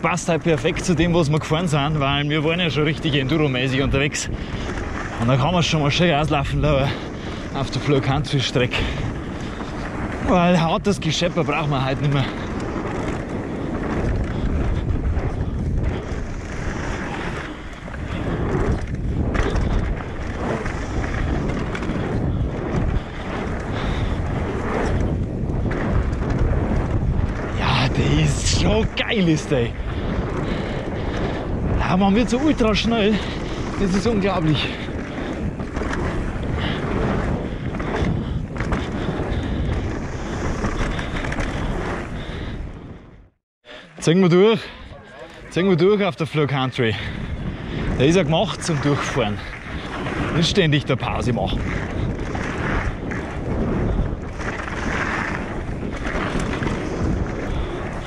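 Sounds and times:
tyres rolling on dirt: 0.0s - 42.6s, 44.0s - 58.0s
wind rushing over microphone: 0.0s - 58.0s
bike knocks and rattles: 11.4s - 27.6s, 29.1s - 42.3s.

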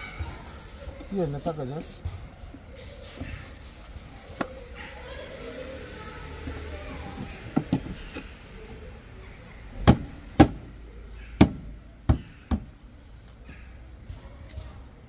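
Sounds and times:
plastic knocks and clicks: 7.5s - 8.3s.

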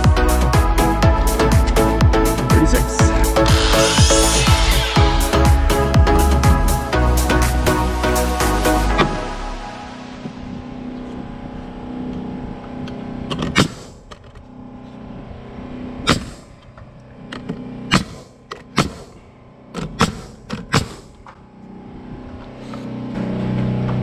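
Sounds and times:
steady machine hum: 0.0s - 24.0s
nailer shooting nails: 13.3s - 14.1s, 16.0s - 16.5s, 17.4s - 21.3s.

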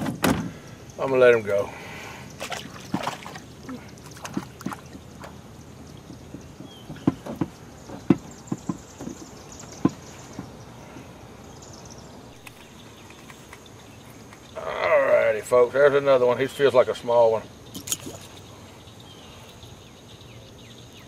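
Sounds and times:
knocks against boat hull: 6.1s - 10.6s.

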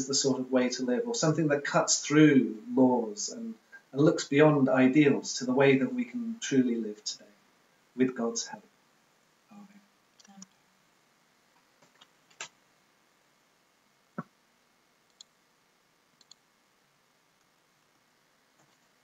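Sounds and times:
small scattered clicks: 15.0s - 15.4s, 16.2s - 16.5s.

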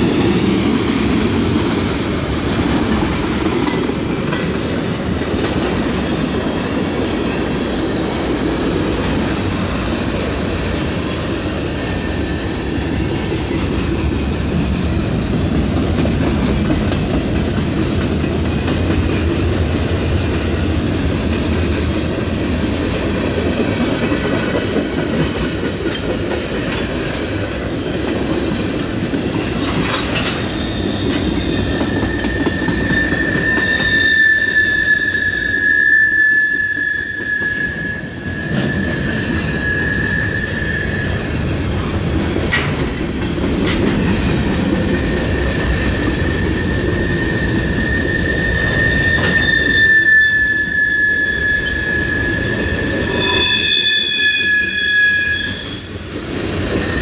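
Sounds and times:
train wheels rumbling on rails: 0.0s - 57.0s
high wheel squeals: 9.9s - 13.9s, 30.3s - 41.5s, 45.0s - 56.0s.

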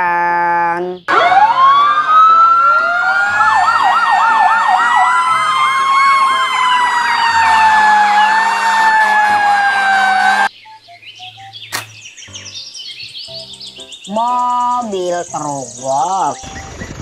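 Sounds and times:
fire engine sirens wailing: 1.1s - 10.5s
yelping siren warble: 1.1s - 10.5s.

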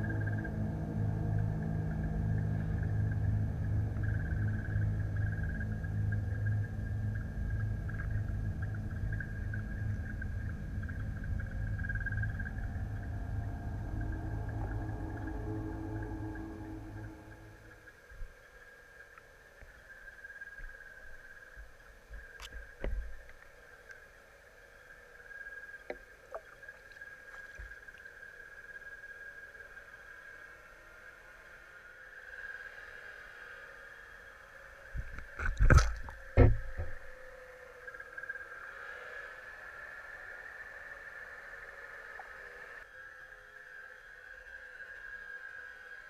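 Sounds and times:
thin high whine: 0.0s - 18.7s
underwater low rumble: 0.0s - 24.0s, 34.8s - 38.0s
underwater clicks and knocks: 22.1s - 23.4s, 35.0s - 37.1s
underwater thud: 35.0s - 37.2s.

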